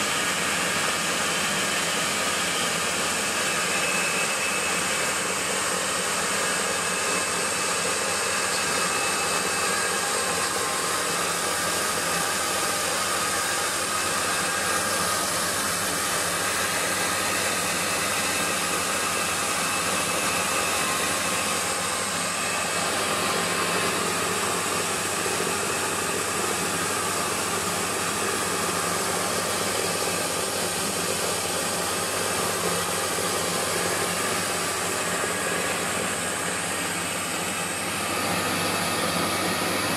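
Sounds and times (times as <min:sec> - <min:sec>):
rice milling machine whirring: 0:00.0 - 0:39.9.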